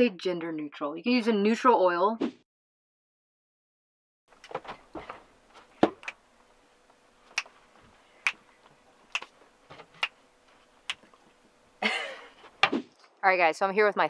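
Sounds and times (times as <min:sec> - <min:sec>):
faint steady hum: 0:04.3 - 0:14.0.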